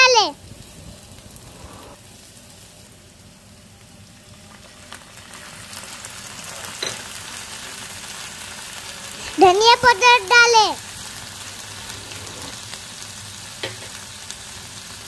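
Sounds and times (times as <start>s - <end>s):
onions sizzling in oil: 0.0s - 15.0s.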